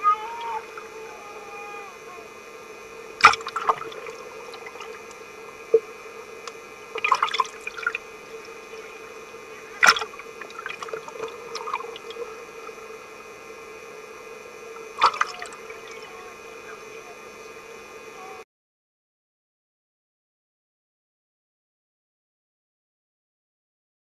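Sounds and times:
muffled underwater water wash: 0.0s - 18.4s
steady hum: 0.0s - 18.4s
water splashing: 2.9s - 13.0s, 14.8s - 16.4s.

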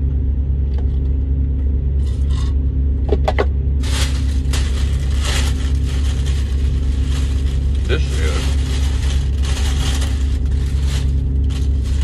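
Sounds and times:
vehicle engine idling: 0.0s - 12.0s
paper food wrapper crinkling: 3.8s - 12.0s.

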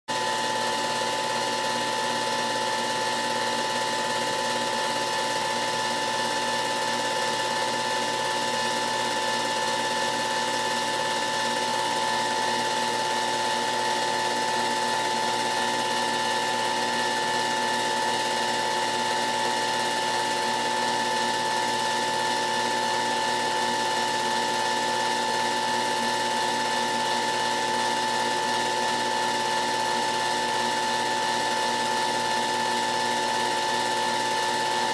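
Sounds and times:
projector whine: 0.1s - 34.9s.

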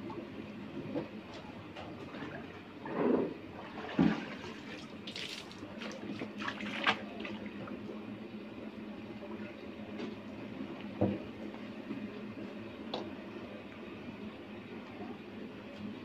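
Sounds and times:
liquid sloshing and splashing: 3.6s - 7.5s.

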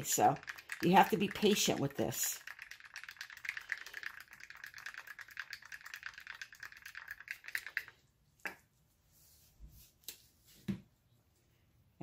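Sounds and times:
stick stirring paint in plastic cup: 0.0s - 8.7s.

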